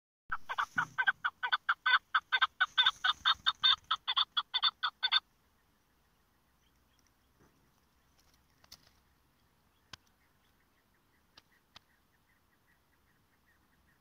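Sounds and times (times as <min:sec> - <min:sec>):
partridge clucking call: 0:00.3 - 0:05.3.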